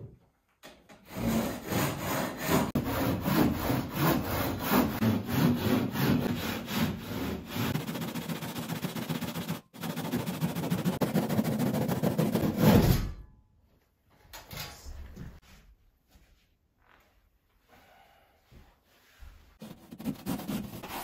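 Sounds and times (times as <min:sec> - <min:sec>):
handsaw cutting drywall: 0:01.0 - 0:12.8, 0:19.6 - 0:21.0.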